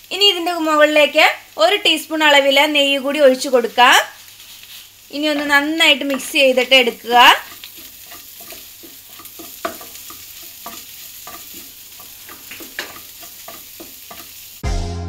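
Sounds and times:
hot fat sizzling: 0.0 - 14.6
wooden spatula scraping a pan: 4.2 - 14.6.

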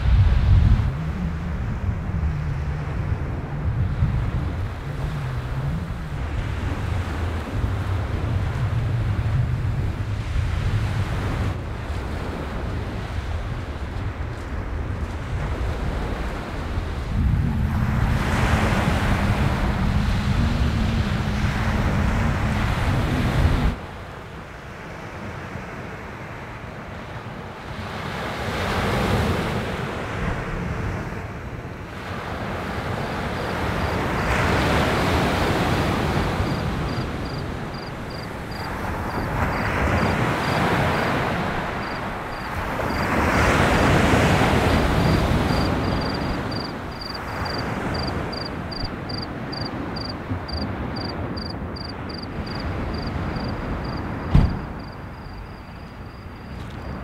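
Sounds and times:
waves washing on shore: 0.0 - 57.0
sharp knock: 54.3 - 54.7.

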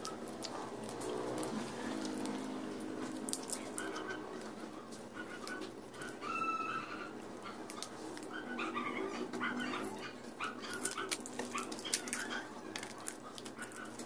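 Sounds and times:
plastic cup clicks and crinkles: 10.7 - 14.0.

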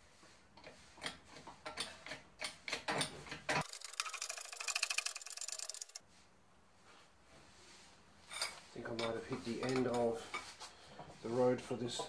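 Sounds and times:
metal bearing clicking: 1.7 - 6.0.

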